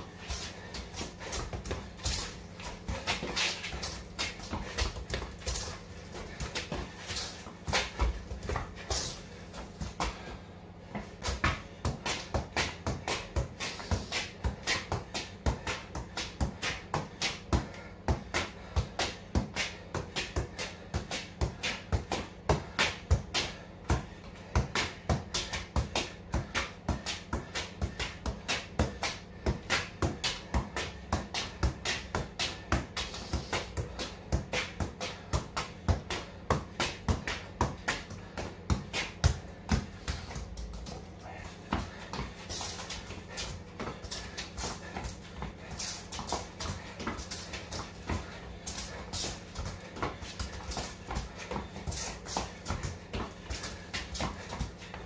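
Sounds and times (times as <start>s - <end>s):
football thumps from kicks: 0.0s - 10.3s, 21.4s - 41.0s, 41.6s - 55.0s.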